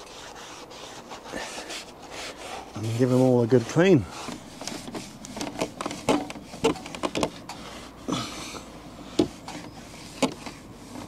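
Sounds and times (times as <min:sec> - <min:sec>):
sponge scrubbing plastic frame: 0:00.0 - 0:07.2.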